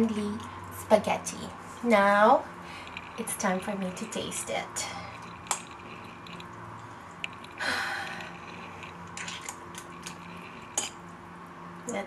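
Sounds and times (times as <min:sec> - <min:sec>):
breathy exhale: 0:06.8 - 0:08.8.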